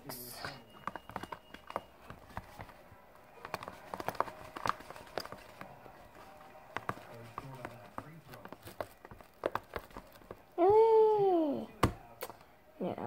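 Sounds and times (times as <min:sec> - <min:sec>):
fingers squelching sticky mixture: 0:00.4 - 0:10.8.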